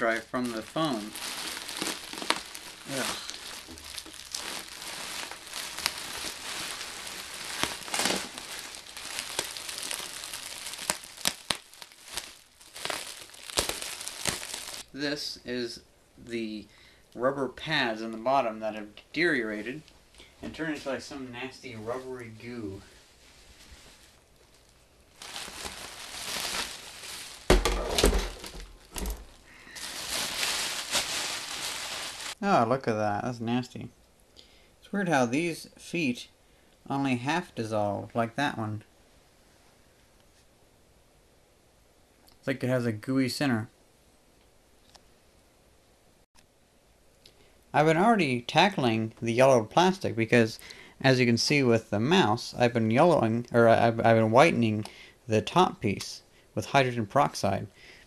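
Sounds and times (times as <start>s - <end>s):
bubble wrap crinkling and crackling: 0.0s - 14.9s, 21.7s - 32.5s.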